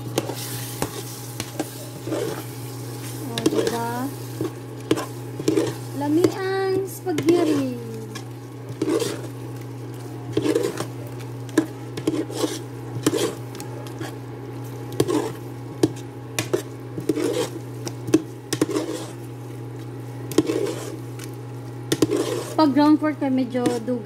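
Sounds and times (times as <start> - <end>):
steady low hum: 0.0 - 24.0
metal spoon scraping a pot: 3.3 - 6.4, 7.0 - 9.4, 10.3 - 14.2, 15.0 - 19.2, 20.3 - 21.0, 21.9 - 22.7, 23.4 - 24.0.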